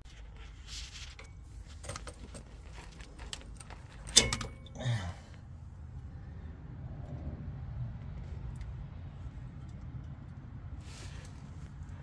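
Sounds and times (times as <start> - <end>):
metal tools clinking and rattling: 1.1 - 4.9
sharp metal clank: 4.1 - 4.8.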